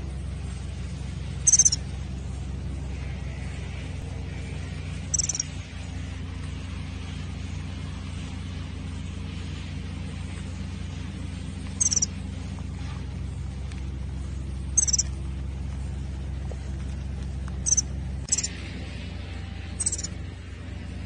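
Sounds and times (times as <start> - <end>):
steady low hum: 0.0 - 21.0
small bird chirping: 1.2 - 2.3, 4.7 - 5.9, 11.6 - 13.1, 14.4 - 15.5, 17.5 - 18.7, 19.6 - 20.2.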